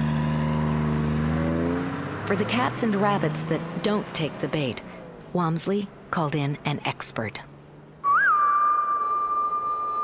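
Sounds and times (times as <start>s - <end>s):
high whistle-like note: 8.0s - 10.0s.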